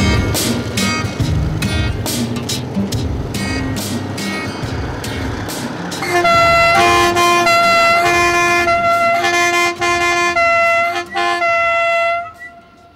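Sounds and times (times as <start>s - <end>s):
train horn blasts: 6.0s - 12.9s.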